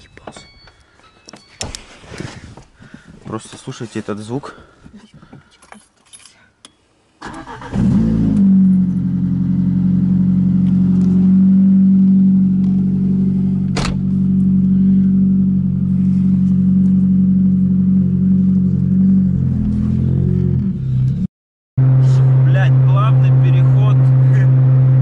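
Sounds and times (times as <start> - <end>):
car engine starting and idling: 7.2 - 20.2.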